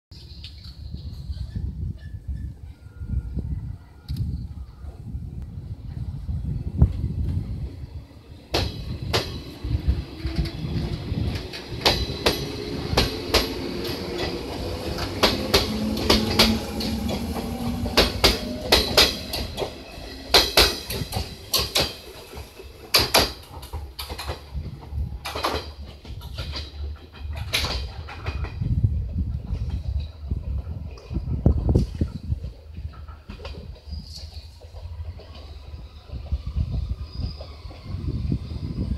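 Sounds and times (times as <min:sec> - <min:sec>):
low train rumble: 0:00.2 - 0:38.9
train wheels clacking over rail joints: 0:08.5 - 0:37.9.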